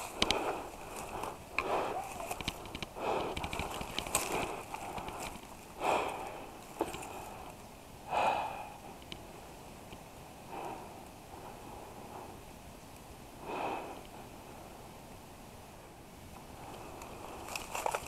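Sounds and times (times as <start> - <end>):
faint outdoor background: 0.0 - 18.0
person breathing out: 0.2 - 3.4.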